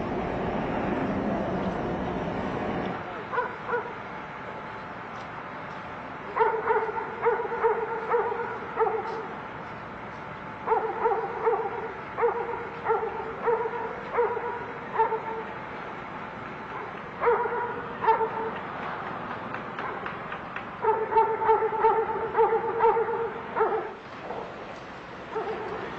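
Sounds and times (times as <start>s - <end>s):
dog barking: 3.3s - 4.0s, 6.4s - 9.3s, 10.6s - 15.5s, 16.7s - 18.6s, 19.8s - 20.1s, 20.8s - 24.5s, 25.3s - 25.9s.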